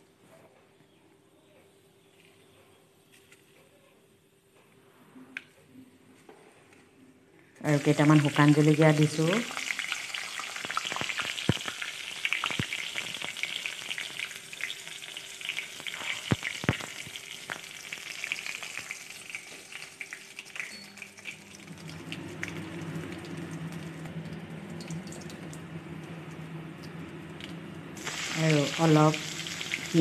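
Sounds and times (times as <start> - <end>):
chillies sizzling in hot oil: 7.7 - 22.1, 28.0 - 30.0
low steady hum: 20.0 - 30.0.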